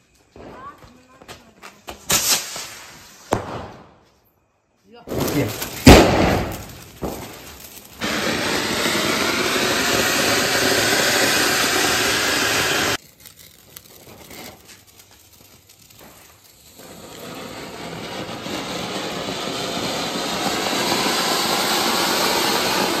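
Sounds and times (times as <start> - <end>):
faint crackles: 5.2 - 8.2, 13.0 - 17.9
fountain firework hissing: 5.2 - 23.0.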